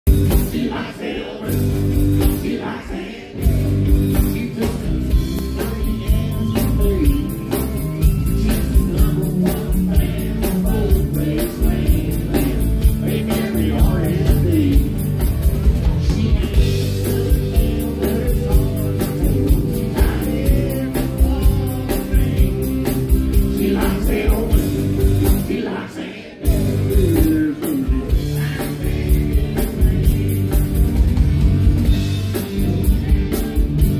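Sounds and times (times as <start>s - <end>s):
man singing: 0.4s - 15.1s, 15.8s - 30.8s
acoustic guitar: 3.4s - 25.6s.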